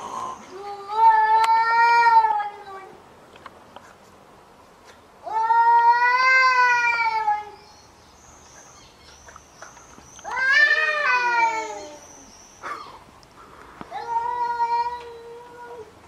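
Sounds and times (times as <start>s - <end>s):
cats yowling in a fight: 10.3s - 13.0s, 13.9s - 16.0s.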